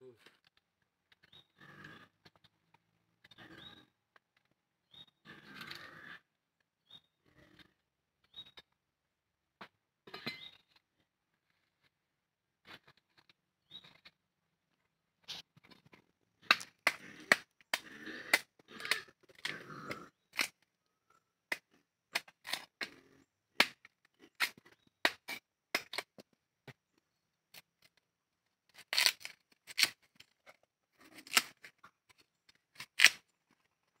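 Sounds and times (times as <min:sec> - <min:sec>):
husks cracking and snapping: 0:15.3 - 0:20.6, 0:28.7 - 0:30.4, 0:31.0 - 0:33.8.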